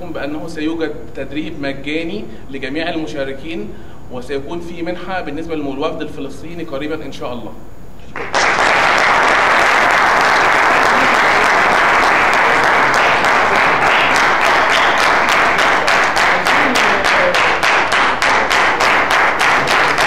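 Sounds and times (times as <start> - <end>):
audience applauding: 8.1 - 20.0.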